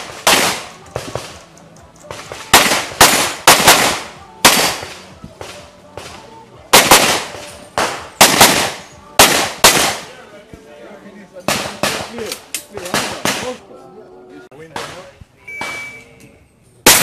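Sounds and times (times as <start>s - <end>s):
pistol shots: 0.0s - 1.4s, 2.1s - 10.1s, 11.5s - 13.6s.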